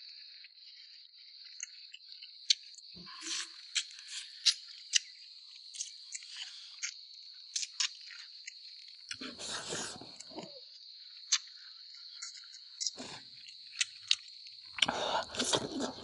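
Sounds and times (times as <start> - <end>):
insect chorus: 0.0 - 16.0
crunchy bites: 9.0 - 10.6, 12.2 - 16.0.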